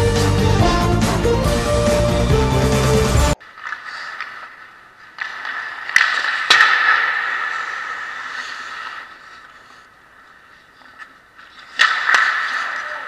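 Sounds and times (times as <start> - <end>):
skate blades scraping on ice: 3.4 - 13.0.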